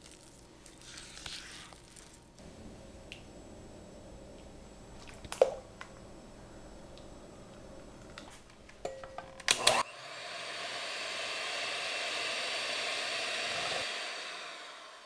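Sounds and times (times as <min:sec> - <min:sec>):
electric hand mixer whirring: 0:09.6 - 0:15.0.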